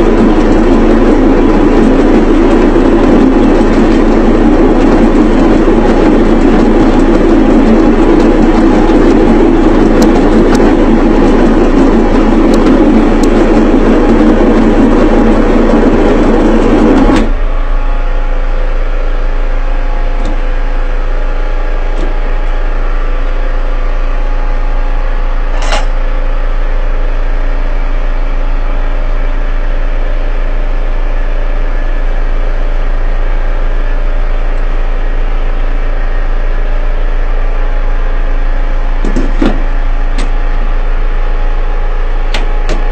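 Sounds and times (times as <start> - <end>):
pounding machine motor hum: 0.0 - 42.9
sharp click: 25.6 - 26.0.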